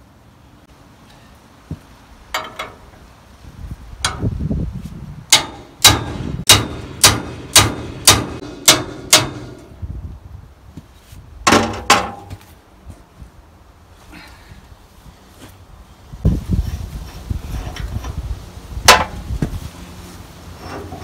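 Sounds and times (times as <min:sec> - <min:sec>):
wrench clanking on metal nut: 0:02.3 - 0:02.9.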